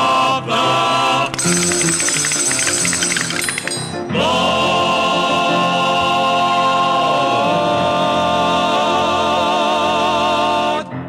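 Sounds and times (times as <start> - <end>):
vocal quartet holding chord: 0.0 - 1.4, 4.0 - 11.0.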